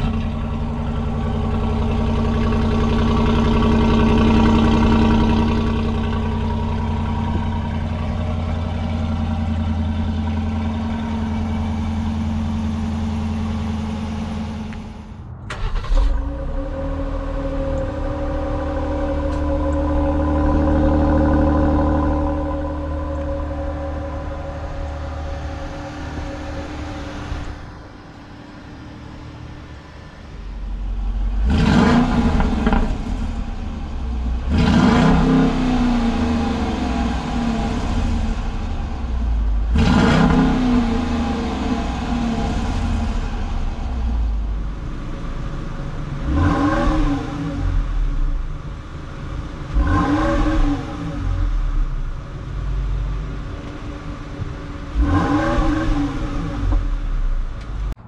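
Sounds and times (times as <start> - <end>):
engine exhaust idling and revving: 0.0 - 58.0.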